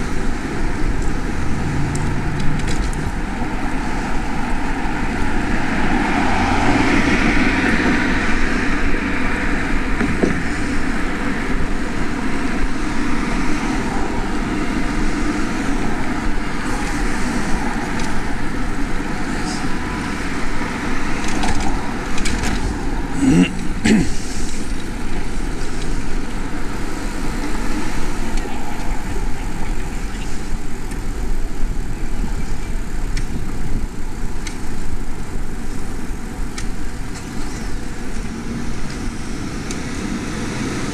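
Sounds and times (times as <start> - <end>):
wind rushing: 0.0 - 30.9
passing street traffic: 0.0 - 40.9.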